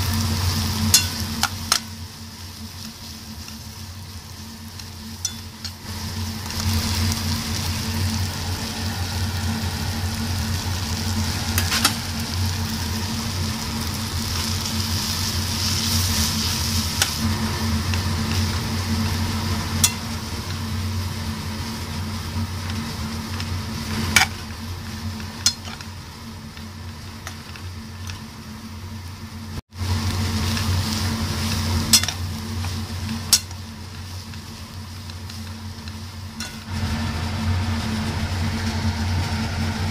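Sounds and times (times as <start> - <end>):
steady low hum: 0.0 - 39.9
vegetables sizzling in a pan: 0.0 - 39.9
spatula tapping pan: 33.3 - 34.4.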